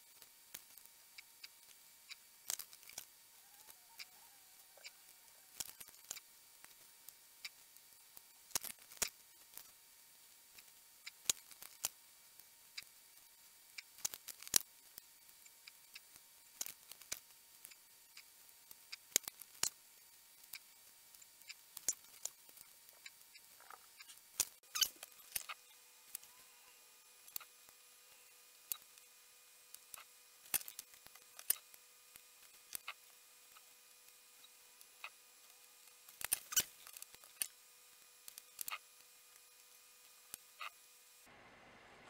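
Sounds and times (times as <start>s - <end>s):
faint high hum: 9.1s - 42.0s.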